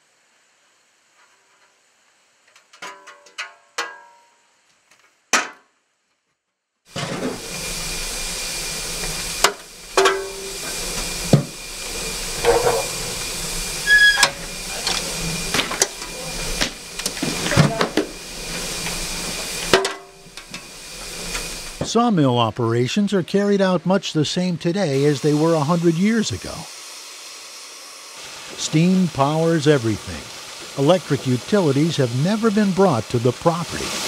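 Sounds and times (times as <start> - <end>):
fire in firebox: 0.0 - 3.6, 6.3 - 34.0
steam boiler hissing: 6.9 - 34.0.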